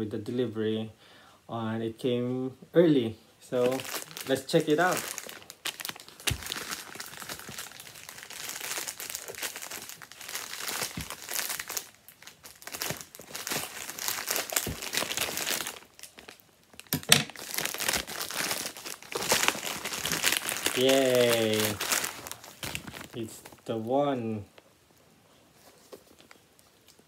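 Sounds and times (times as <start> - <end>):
plastic bag crinkling and rustling: 3.5 - 27.0
small clicks and crackles: 25.3 - 27.0.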